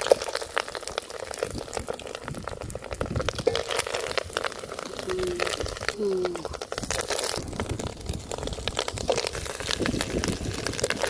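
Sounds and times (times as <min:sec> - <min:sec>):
crackles from cooking food: 0:00.0 - 0:11.0
wet bubbling: 0:00.0 - 0:11.0
wooden spatula scraping metal pot: 0:03.3 - 0:07.4, 0:08.8 - 0:11.0.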